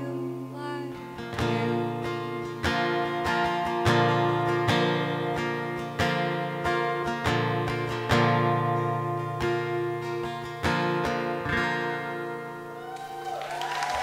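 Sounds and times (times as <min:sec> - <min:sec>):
acoustic guitar strumming chords: 0:00.0 - 0:13.0
audience cheering and applauding: 0:12.8 - 0:14.0.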